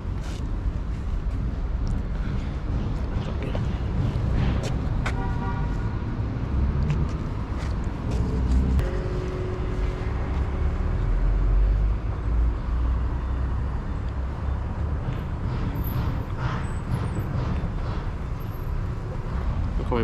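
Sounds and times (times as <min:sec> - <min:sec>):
cars going by: 0:00.0 - 0:20.0.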